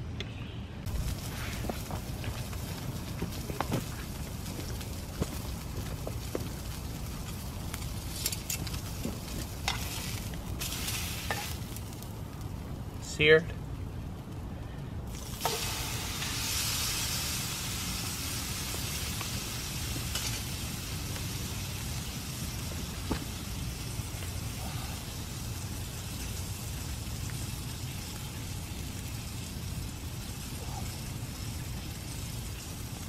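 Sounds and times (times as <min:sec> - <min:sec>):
steak sizzling in a frying pan: 0:06.2 - 0:12.0, 0:15.1 - 0:33.0.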